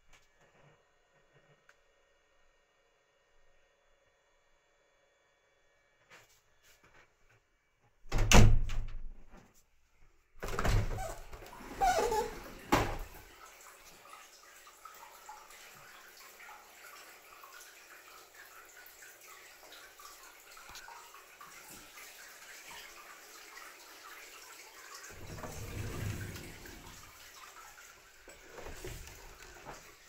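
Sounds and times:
water pouring into bath: 11.5 - 30.0
door opening with click: 25.1 - 27.0
low rumble of door: 25.1 - 27.1.

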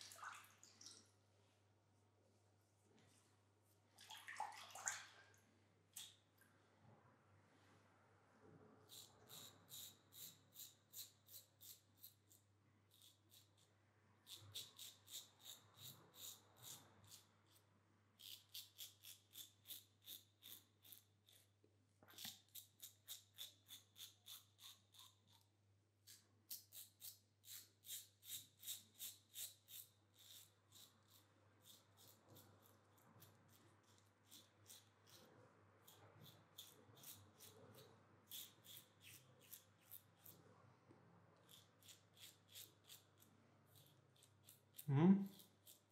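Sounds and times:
razor scraping stubble: 41.4 - 45.9.

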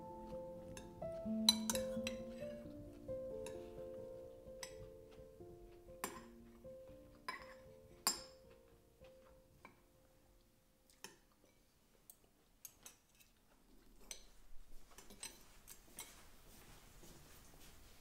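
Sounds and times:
spoon clinking on ceramic bowl: 1.5 - 2.6, 6.0 - 6.3, 7.3 - 8.5.

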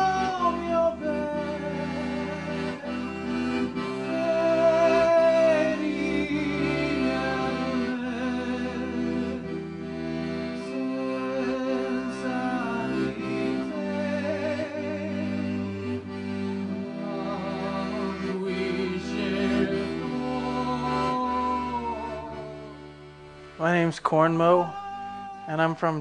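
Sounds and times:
accordion music: 0.0 - 26.0.

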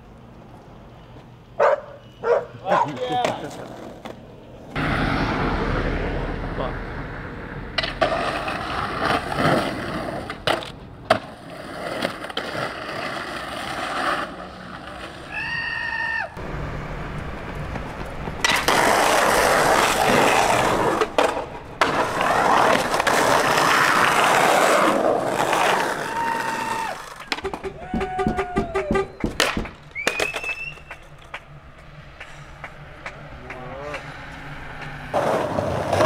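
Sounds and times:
skateboard wheels rolling on concrete: 0.0 - 36.0
skateboard clacking on pavement: 2.7 - 4.3, 7.8 - 14.2, 17.3 - 36.0.

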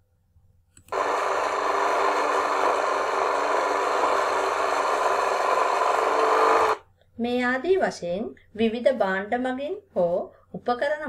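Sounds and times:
lawn mower engine running: 0.9 - 6.8.

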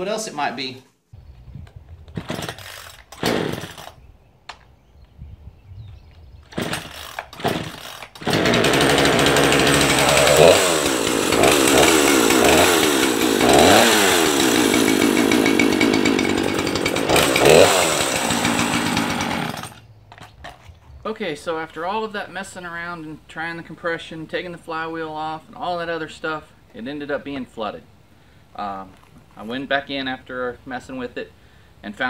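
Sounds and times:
starter cord pulls with sputters: 2.0 - 4.0, 6.4 - 21.0
chainsaw engine revving: 2.2 - 4.0, 6.5 - 20.6.

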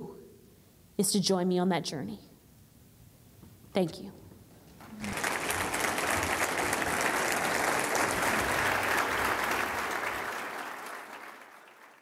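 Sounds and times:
audience applauding: 4.8 - 12.0.

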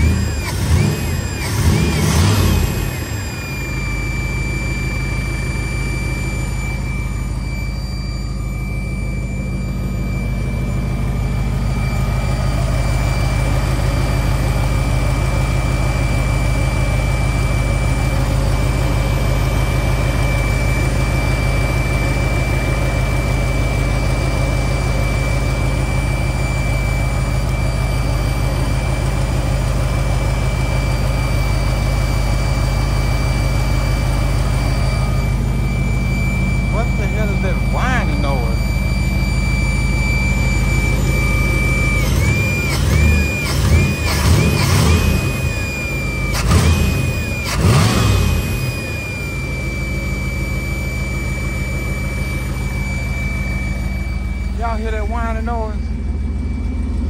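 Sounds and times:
car engine running steadily: 0.0 - 57.0
thin high-pitched tone: 34.7 - 43.3.

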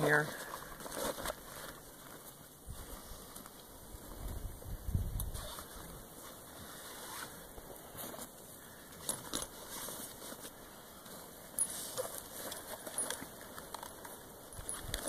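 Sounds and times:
radio gear rustling and clinking: 8.0 - 15.0.

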